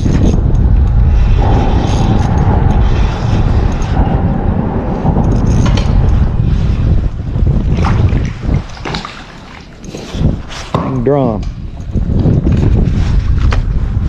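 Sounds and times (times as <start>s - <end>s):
steady whine: 0.0s - 8.5s
wind rumble on microphone: 0.0s - 14.0s.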